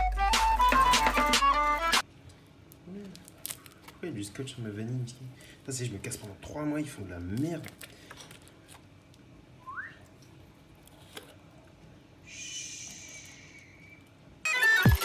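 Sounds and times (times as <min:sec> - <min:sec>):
background music: 0:00.0 - 0:02.0
rising whistle-like chirp: 0:09.6 - 0:10.0, 0:12.3 - 0:14.1
soft hiss with whistling tones: 0:12.2 - 0:14.1.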